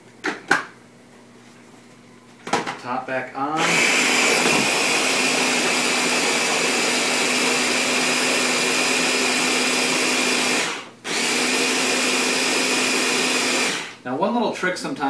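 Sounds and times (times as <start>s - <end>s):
blender running: 3.6s - 14.0s.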